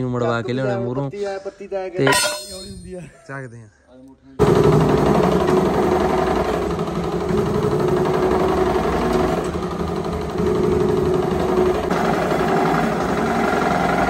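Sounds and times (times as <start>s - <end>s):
machine running with fast rattle: 4.4s - 14.0s.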